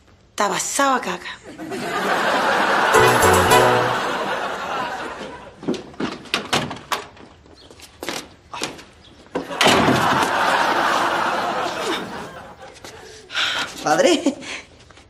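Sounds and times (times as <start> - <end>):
audience laughter: 1.6 - 5.4, 9.8 - 12.7.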